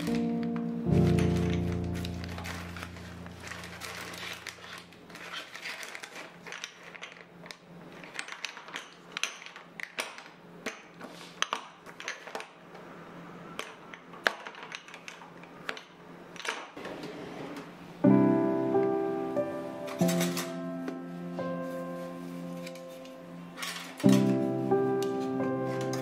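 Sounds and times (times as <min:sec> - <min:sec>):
plastic packets crinkling: 0:00.0 - 0:10.0.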